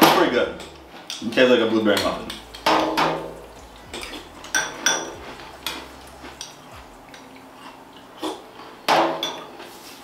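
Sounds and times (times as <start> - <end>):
spoon clinking against glass bowl: 2.0 - 7.3.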